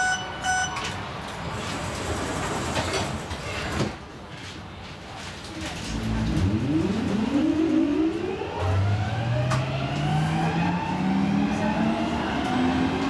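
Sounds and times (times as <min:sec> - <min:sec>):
metro train drive whining: 0:05.9 - 0:13.0.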